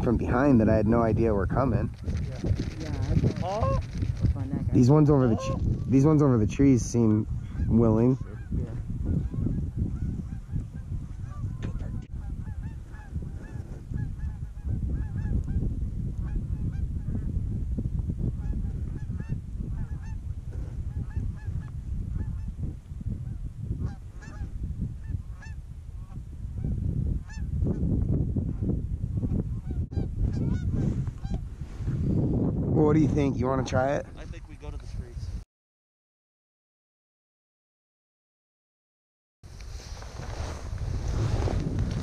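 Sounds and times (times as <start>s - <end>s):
wind rumble on microphone: 0.0s - 35.4s, 39.5s - 42.0s
geese honking and clucking: 3.2s - 3.9s, 5.2s - 5.9s, 7.4s - 15.4s, 20.9s - 22.5s, 23.2s - 27.5s, 29.5s - 31.4s.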